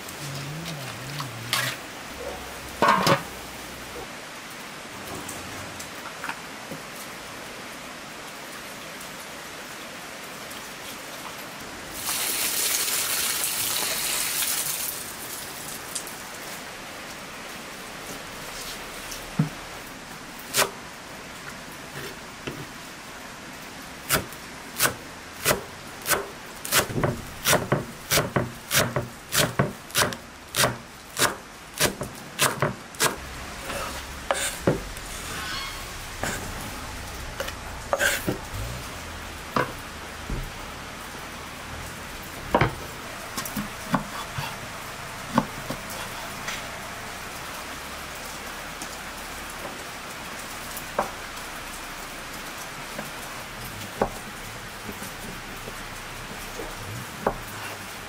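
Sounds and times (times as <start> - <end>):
knife chopping on wooden board: 24.1 - 33.2.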